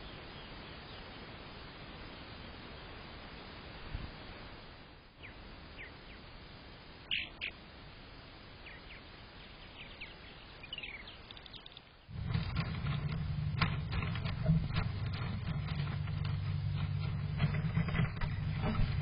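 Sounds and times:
faint hiss: 0.0s - 12.2s
bird chirping: 5.2s - 6.3s, 7.0s - 7.6s, 8.6s - 19.0s.

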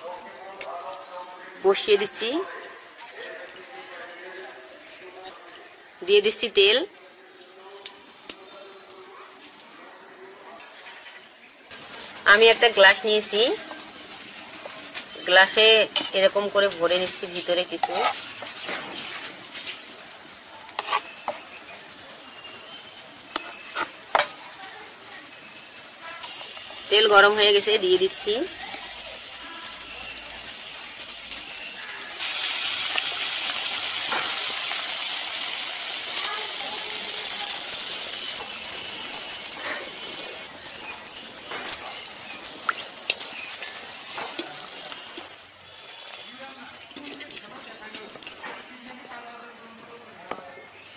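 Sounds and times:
batter sizzling in hot oil: 11.0s - 50.9s
oil popping: 28.1s - 48.8s.

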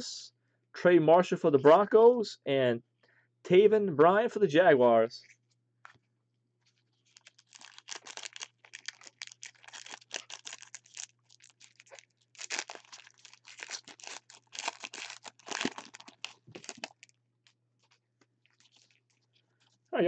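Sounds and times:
foil wrapper crinkling: 7.0s - 19.8s.

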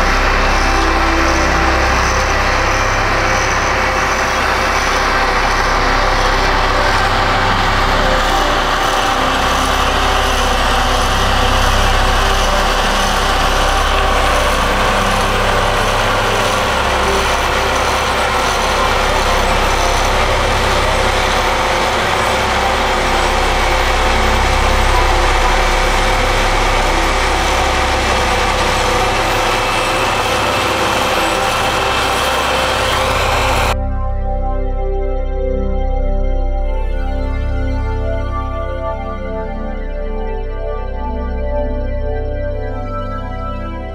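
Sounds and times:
diesel engines droning: 0.0s - 33.8s.

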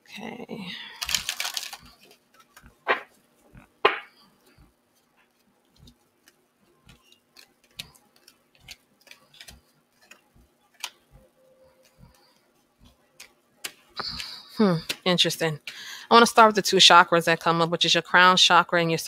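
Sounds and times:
cards tapping on tabletop: 2.9s - 3.1s, 3.8s - 4.1s.

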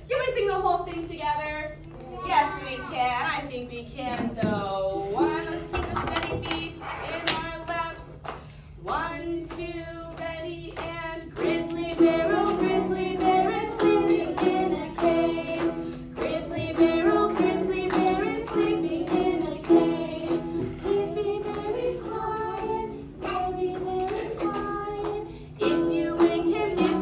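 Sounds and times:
children and woman singing: 4.2s - 27.0s
strummed ukulele: 11.4s - 27.0s.

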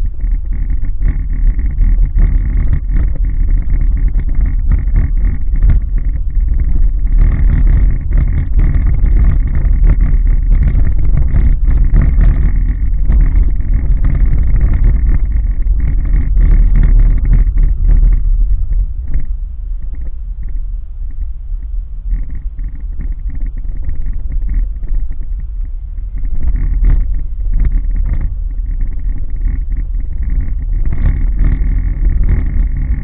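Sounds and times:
car road and engine rumble: 0.0s - 33.0s.

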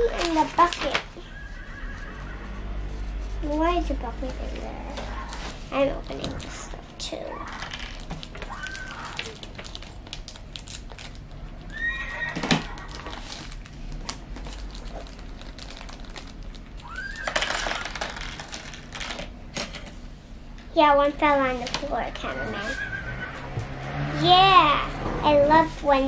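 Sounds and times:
plastic bag rustling: 0.0s - 1.2s, 4.0s - 11.7s, 12.4s - 19.3s
plastic toy pieces clicking: 17.2s - 19.2s.

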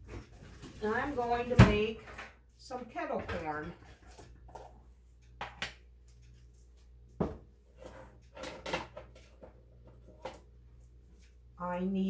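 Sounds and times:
kitchen items clattering: 0.0s - 4.8s, 7.2s - 10.5s.

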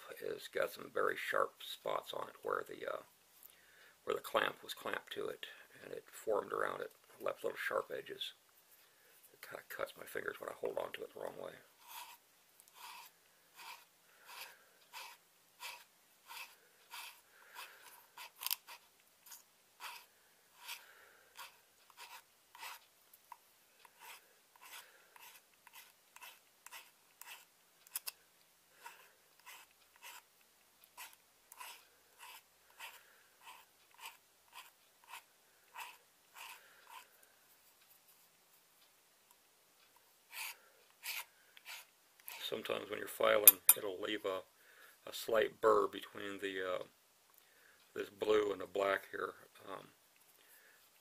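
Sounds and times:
hand file rasping: 11.8s - 18.8s, 23.8s - 28.1s, 28.8s - 30.3s, 30.9s - 37.1s.

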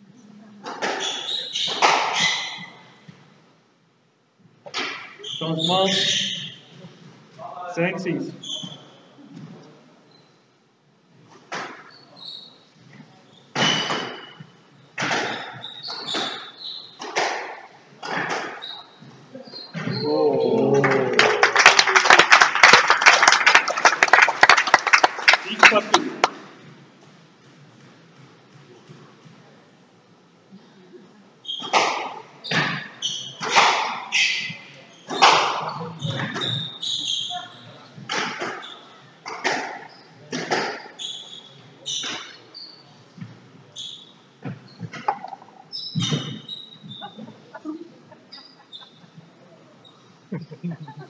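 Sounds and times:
shoes squeaking on wooden floor: 0.6s - 3.4s, 8.2s - 10.4s, 11.1s - 20.6s, 31.4s - 50.2s
squash ball hits: 15.0s - 16.4s, 35.1s - 36.6s.

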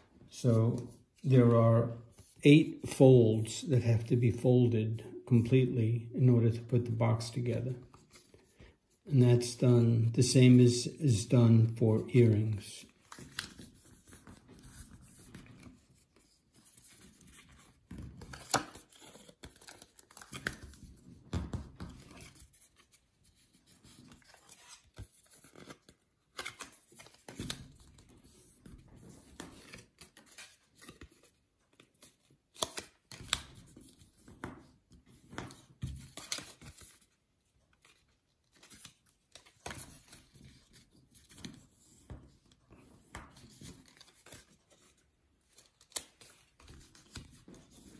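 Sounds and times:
card rustling and scraping: 12.1s - 21.2s, 21.9s - 37.2s
card folds clicking and snapping: 12.9s - 47.9s.

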